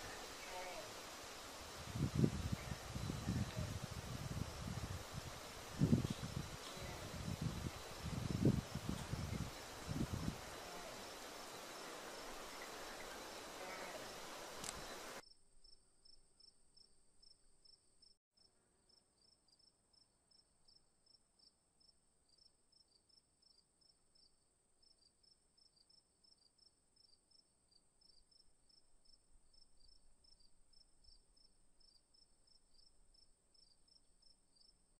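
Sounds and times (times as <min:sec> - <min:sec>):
high insect trill: 0:00.0 - 0:16.9
crickets chirping: 0:00.0 - 0:18.2, 0:18.9 - 0:34.8.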